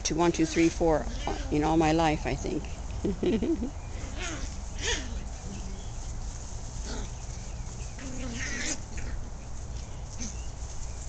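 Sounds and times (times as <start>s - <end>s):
puppies yipping and whining: 0.4s - 1.8s, 3.8s - 10.8s.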